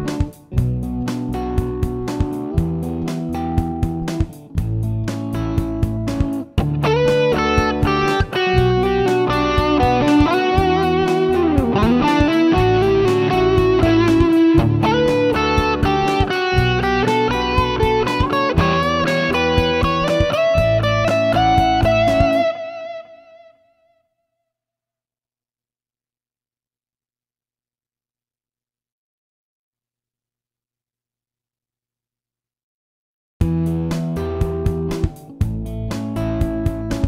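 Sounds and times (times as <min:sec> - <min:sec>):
programmed drums: 0:00.0 - 0:22.6, 0:33.4 - 0:37.0
bass guitar: 0:00.0 - 0:23.5, 0:33.4 - 0:37.0
lead electric guitar: 0:00.0 - 0:23.9.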